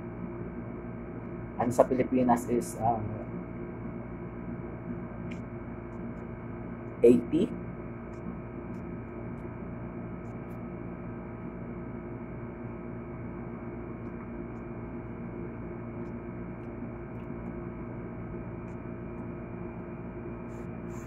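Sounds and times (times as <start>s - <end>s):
steady electrical hum: 0.0s - 21.0s.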